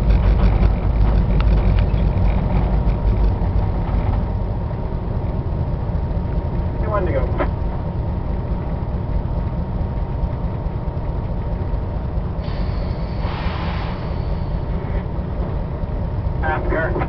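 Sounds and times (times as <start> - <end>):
diesel locomotive engine rumble: 0.0 - 17.0
hissing noise: 12.4 - 14.6.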